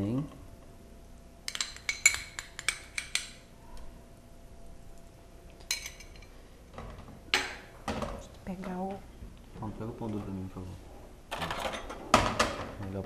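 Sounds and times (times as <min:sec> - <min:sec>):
metal spoon clinking on saucepan: 0:01.5 - 0:03.4, 0:05.6 - 0:06.3.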